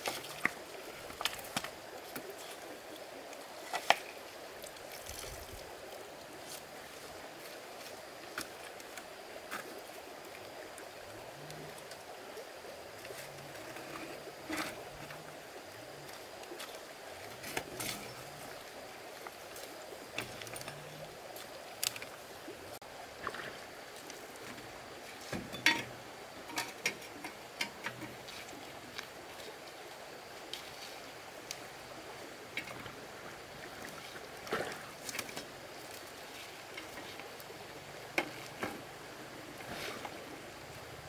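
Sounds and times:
sharp splashes and clicks: 0.0 - 2.6, 3.3 - 5.6, 19.2 - 22.2
running water: 0.0 - 41.0.

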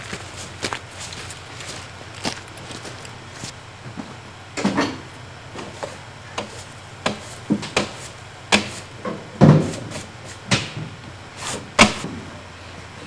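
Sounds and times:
knocks and thuds of objects: 5.6 - 11.0, 11.7 - 12.3.

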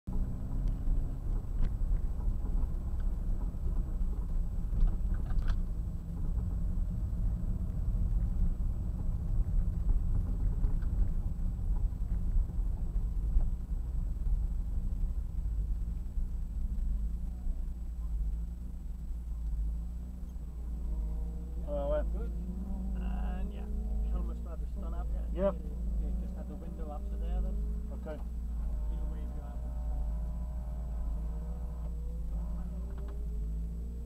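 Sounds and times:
car engine running from inside: 0.1 - 34.0
light ticks: 0.6 - 6.5.

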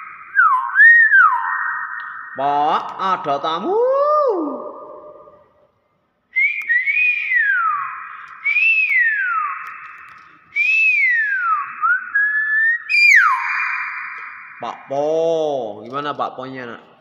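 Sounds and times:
myna whistling: 0.0 - 2.4, 6.4 - 14.6.

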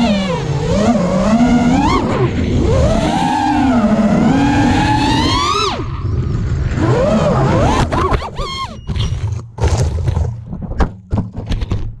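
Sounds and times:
drone motors whining: 0.0 - 9.1.

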